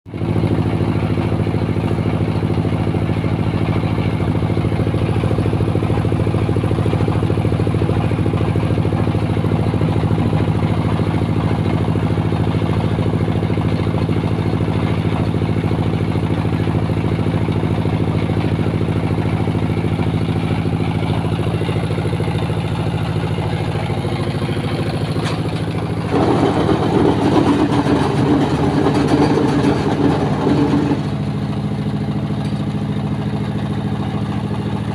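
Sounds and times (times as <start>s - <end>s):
block press machine humming: 17.0s - 34.9s.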